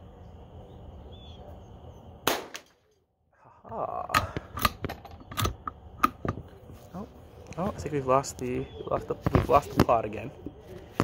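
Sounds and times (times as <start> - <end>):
rifle shot crack: 2.2 - 2.8
rifle bolt clicks and knocks: 4.2 - 6.4.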